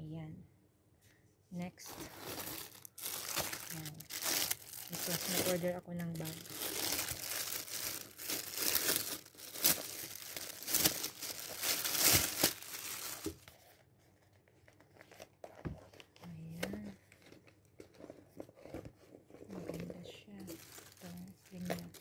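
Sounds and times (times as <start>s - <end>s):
rustling and handling: 1.0s - 22.0s
packaging crinkling and tearing: 1.8s - 13.7s, 16.8s - 22.0s.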